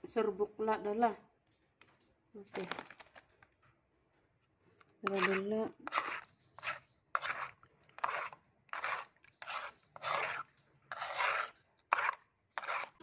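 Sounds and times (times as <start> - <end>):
spoon scraping plastic bowl: 4.8 - 13.0.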